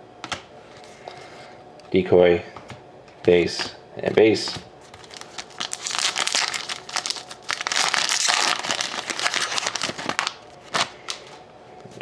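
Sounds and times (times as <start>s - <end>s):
foil wrapper crinkling: 4.9s - 11.4s.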